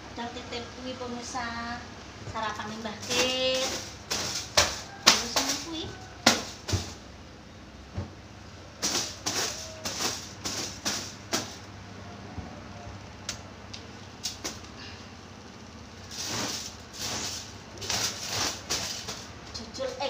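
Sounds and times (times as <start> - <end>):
broom brushing a mattress: 3.0 - 7.0, 8.8 - 11.6, 16.1 - 19.3.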